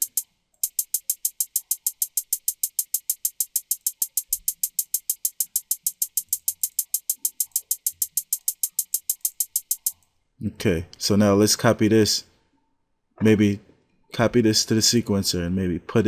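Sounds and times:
hi-hat ticking: 0.0 - 10.0.

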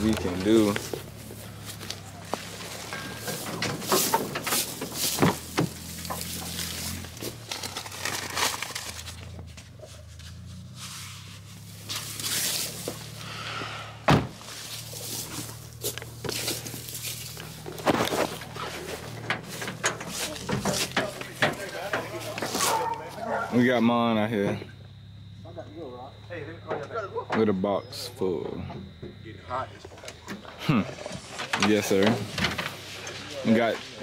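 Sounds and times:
knocks and thumps: 2.9 - 6.6, 14.1 - 14.4, 17.7 - 22.6.

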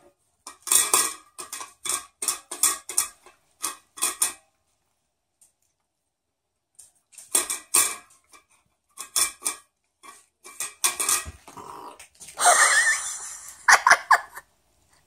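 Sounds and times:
metal bowl scraping against stand: 7.4 - 11.5.

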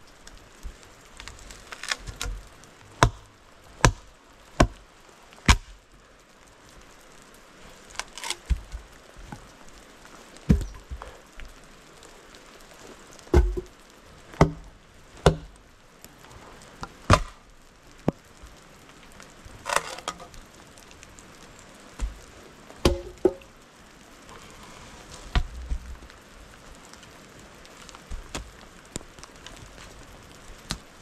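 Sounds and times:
wood splintering crack: 0.6 - 4.8, 5.4 - 5.8, 7.8 - 9.5, 17.1 - 17.5, 19.6 - 20.4
sharp knocks on wood: 13.4 - 13.7, 22.8 - 23.4.

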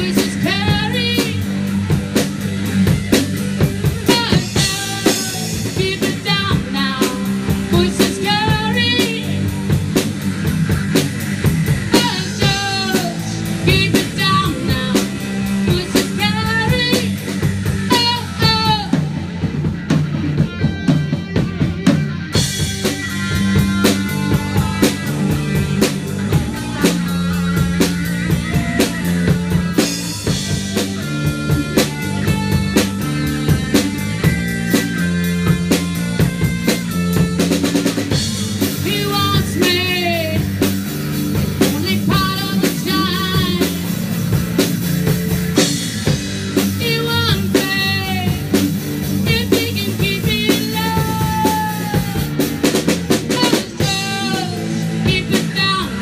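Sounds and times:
woman singing: 0.0 - 1.5, 4.0 - 9.6, 11.9 - 19.3, 38.6 - 40.7, 41.6 - 44.0, 46.6 - 48.6, 49.2 - 52.3, 53.3 - 56.0
rock band playing: 0.0 - 56.0.

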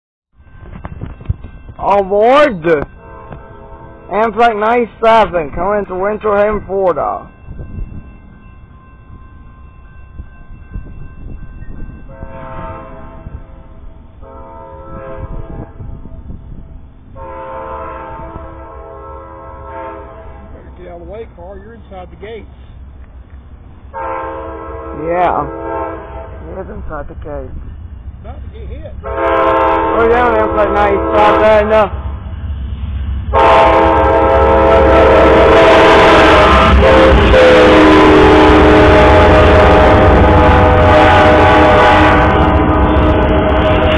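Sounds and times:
locomotive low rumble: 0.4 - 43.9
train air horn blasts: 3.0 - 4.5, 12.1 - 13.6, 14.2 - 16.1, 17.2 - 20.7, 23.9 - 26.5, 29.0 - 32.0, 33.3 - 43.9.

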